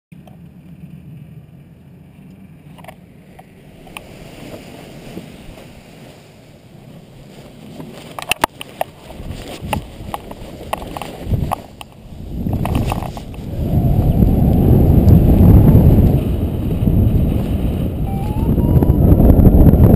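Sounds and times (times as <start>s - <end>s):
sharp knocks and rustles: 7.7s - 13.4s
wind buffeting microphone: 8.4s - 19.9s.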